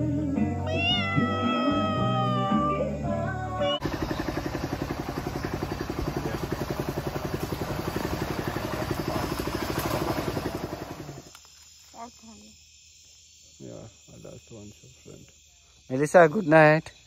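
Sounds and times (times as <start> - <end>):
outboard motor running: 3.6 - 11.4.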